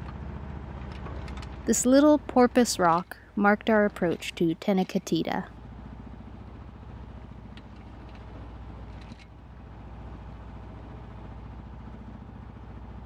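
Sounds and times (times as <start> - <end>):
boat engine droning: 0.0 - 5.4.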